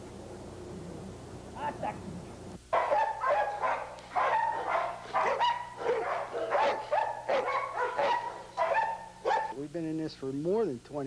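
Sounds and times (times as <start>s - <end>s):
dog barking: 2.7s - 9.6s.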